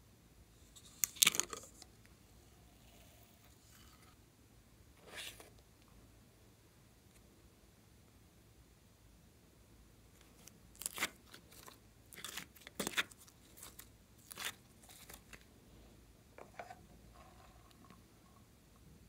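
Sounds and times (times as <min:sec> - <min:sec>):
plastic tub crinkling: 0:10.2 - 0:15.4.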